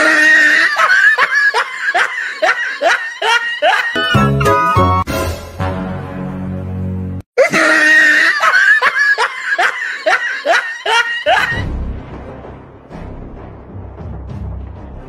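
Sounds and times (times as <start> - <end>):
laughter sound effect: 0.0 - 5.0, 7.4 - 11.6
background music: 4.0 - 7.2, 11.3 - 15.0.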